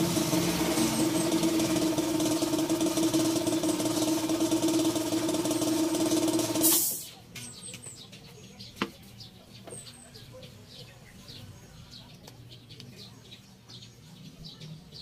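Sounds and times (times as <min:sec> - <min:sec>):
air compressor running: 0:00.0 - 0:07.1
hiss of released air: 0:06.6 - 0:07.1.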